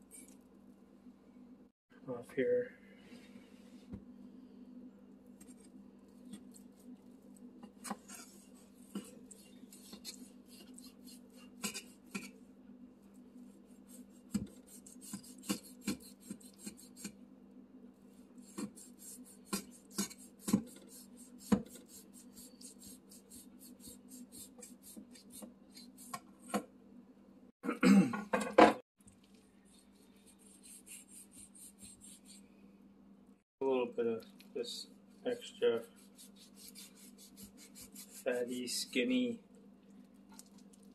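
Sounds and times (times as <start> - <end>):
steady low hum: 0.0 - 28.2
knife slicing through fat: 36.0 - 38.6.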